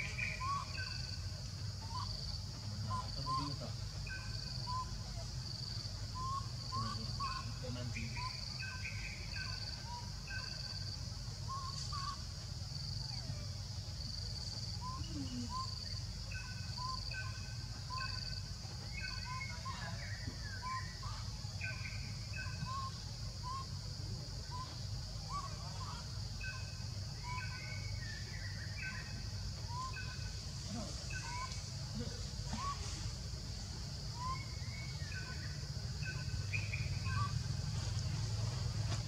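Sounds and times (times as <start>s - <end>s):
birds calling: 0.0s - 5.2s, 6.1s - 10.8s, 24.5s - 39.0s
high pulsing insect call: 0.0s - 39.0s
steady low rumble: 20.0s - 39.0s.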